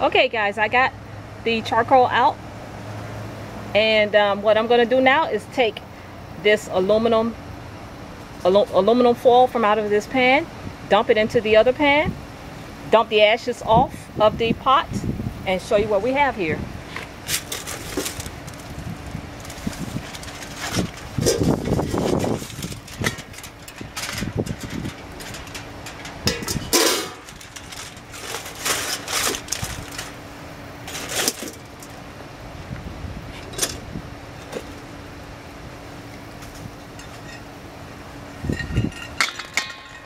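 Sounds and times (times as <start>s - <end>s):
aluminum foil crinkling: 17.2s - 32.0s
metal pans knocking and scraping: 20.6s - 30.1s.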